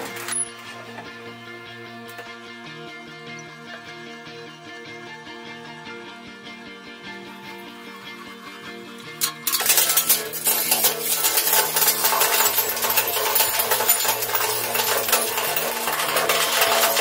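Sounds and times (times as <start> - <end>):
background music: 0.0 - 17.0
glass cracking and shattering: 9.2 - 17.0.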